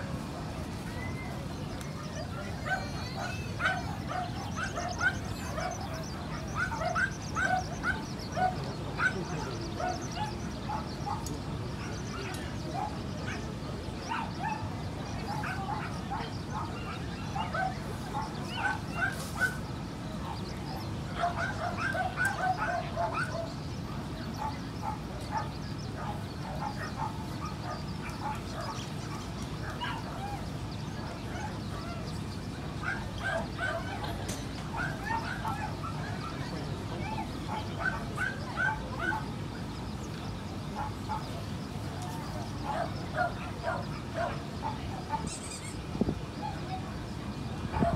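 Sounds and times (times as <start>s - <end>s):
low background noise: 0.0s - 47.9s
dogs yapping: 2.0s - 13.5s, 15.2s - 23.6s, 24.3s - 30.5s, 32.8s - 39.3s, 40.8s - 45.8s.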